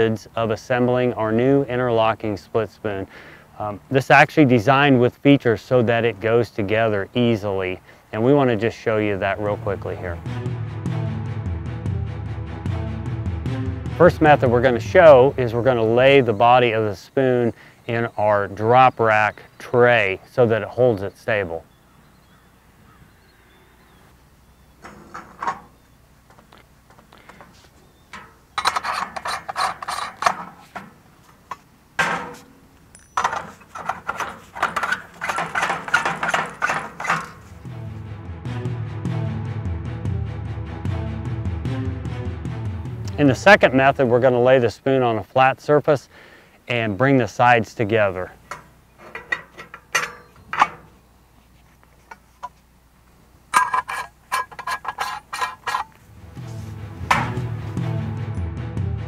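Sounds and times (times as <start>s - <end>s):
music: 9.4s - 15.8s, 37.5s - 44.0s, 56.1s - 59.0s
metal parts scraping and clicking: 26.4s - 37.6s, 48.4s - 51.0s, 53.5s - 56.1s
metal tube clinking on tray: 28.1s - 30.9s, 32.0s - 37.5s, 48.4s - 50.9s, 53.5s - 56.0s
sharp metal knock: 57.1s - 57.5s.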